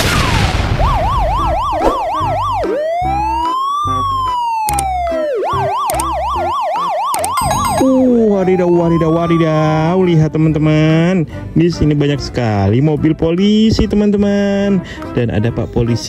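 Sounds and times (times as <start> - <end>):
electronic police siren: 0.6 - 10.0
music: 1.3 - 16.0.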